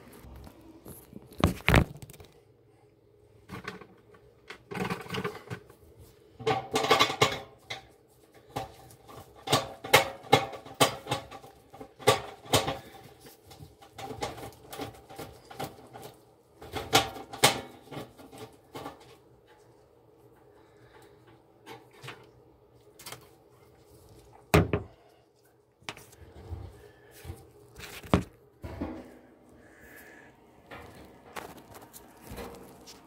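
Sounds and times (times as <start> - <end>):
objects knocking and clattering: 3.5 - 5.8, 6.4 - 19.7, 27.8 - 29.4.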